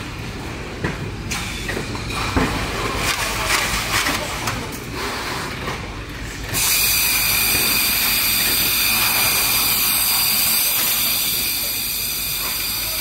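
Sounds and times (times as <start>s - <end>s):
factory machinery hissing: 4.9s - 13.0s
high-pitched machine tones: 6.6s - 13.0s.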